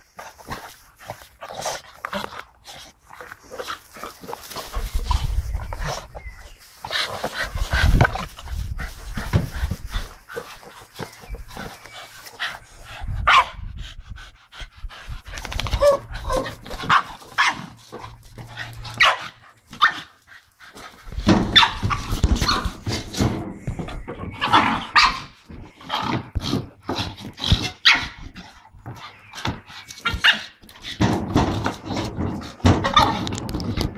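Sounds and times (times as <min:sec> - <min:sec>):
dogs barking: 0:13.2 - 0:13.6, 0:18.9 - 0:20.1.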